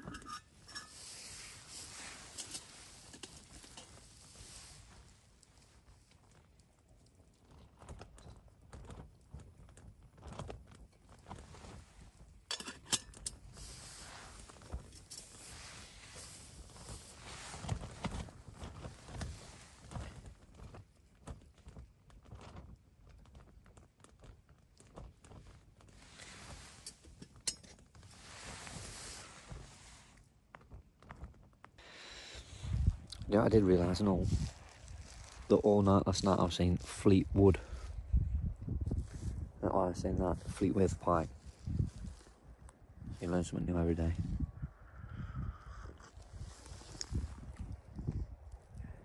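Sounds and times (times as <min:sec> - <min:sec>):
footsteps on stony ground: 0:32.7 - 0:37.5.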